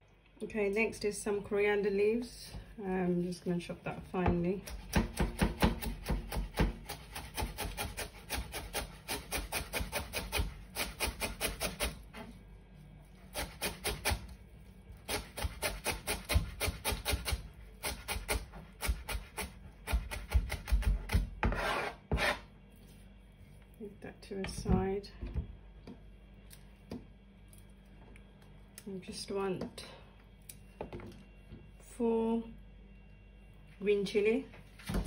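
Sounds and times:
knife chopping on plastic board: 4.3s - 12.0s, 15.1s - 22.4s.

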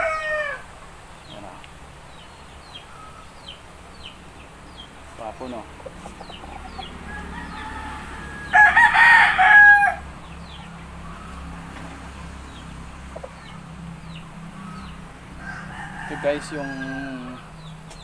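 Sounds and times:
rooster crowing: 0.0s - 0.7s, 6.3s - 12.6s, 14.6s - 17.6s.

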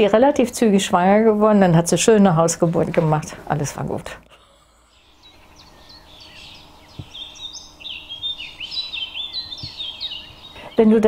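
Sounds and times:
faint steady hum: 0.0s - 11.0s
songbirds chirping and trilling: 4.4s - 11.0s.

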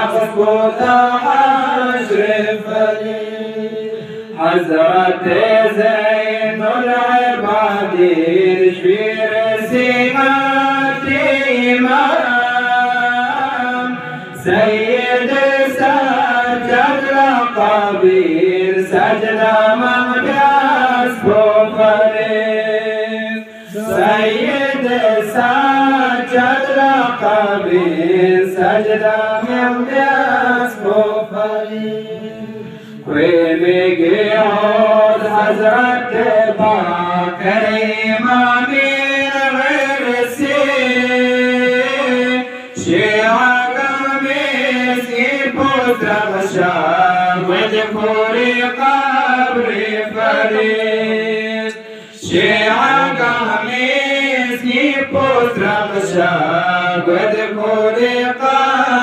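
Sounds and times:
man chanting: 0.0s - 59.0s.

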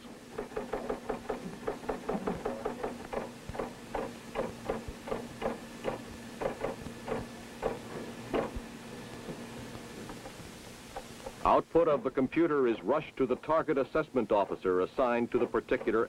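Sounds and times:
steady electrical hum: 0.0s - 16.0s
teleprinter keyboard clacking: 0.4s - 7.8s.

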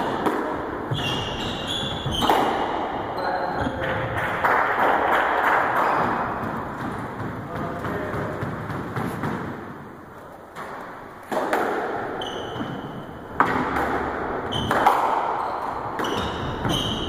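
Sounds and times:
squash ball hits echoing: 0.0s - 17.0s
shoes squeaking on wooden floor: 0.8s - 3.8s, 12.1s - 13.4s, 14.4s - 17.0s.

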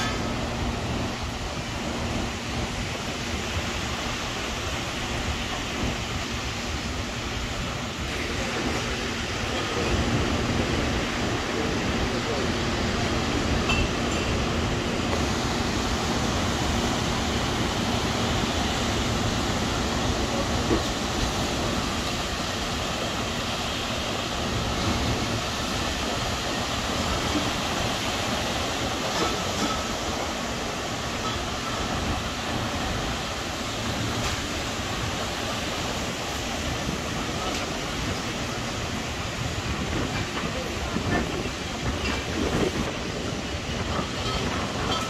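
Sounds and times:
ocean surf: 0.0s - 45.0s
wind on microphone: 39.0s - 45.0s.

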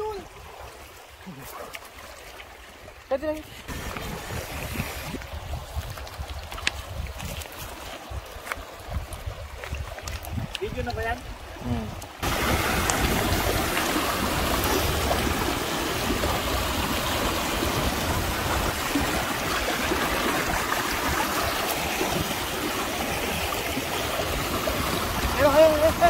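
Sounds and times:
river water rushing over rocks: 3.6s - 6.5s, 11.3s - 26.0s.

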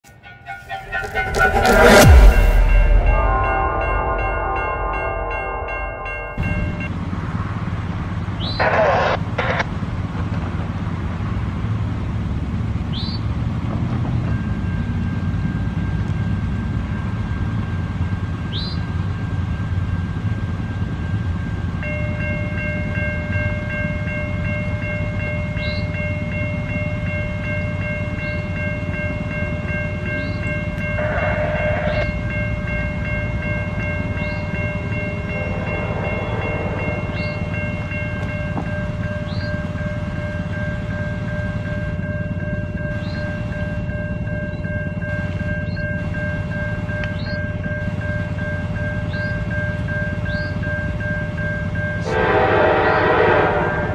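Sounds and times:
crossing warning bells ringing: 0.0s - 53.9s
train rumble: 0.0s - 53.9s
train horn: 0.2s - 6.7s, 30.9s - 32.3s, 35.1s - 38.4s, 52.0s - 53.9s
brief loud noise: 0.7s - 5.7s.

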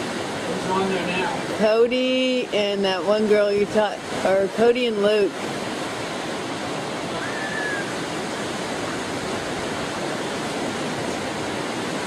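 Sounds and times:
surf rushing at shore: 0.0s - 12.0s
faint high-pitched call: 7.1s - 8.0s.

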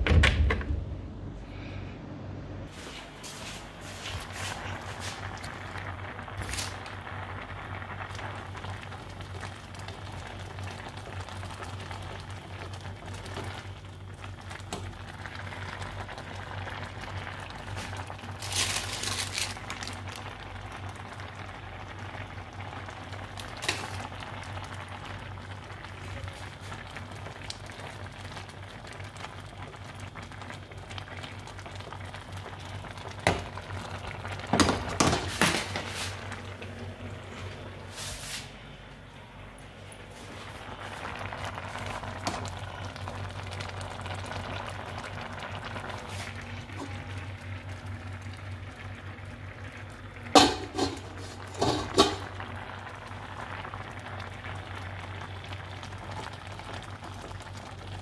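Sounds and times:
low hum: 0.0s - 6.4s
water boiling in a pan: 3.4s - 38.5s, 40.0s - 58.0s.

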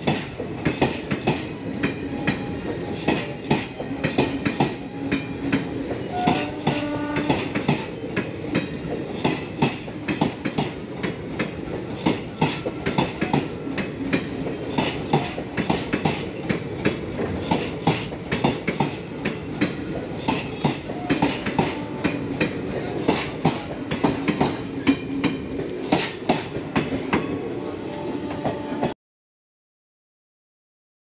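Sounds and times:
train wheels clattering: 0.0s - 28.9s
train rumble: 0.0s - 29.0s.

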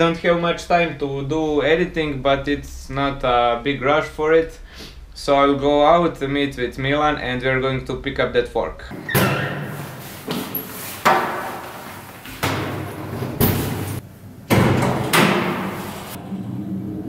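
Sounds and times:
heavy thuds and door bangs: 11.0s - 16.2s.

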